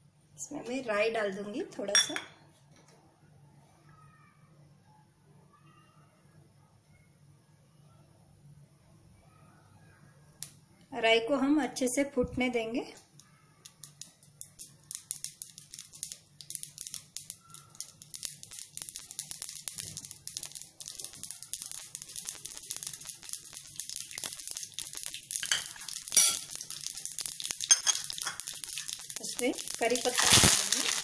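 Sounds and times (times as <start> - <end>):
seeds popping in hot oil: 10.4 - 10.6, 12.8 - 31.0.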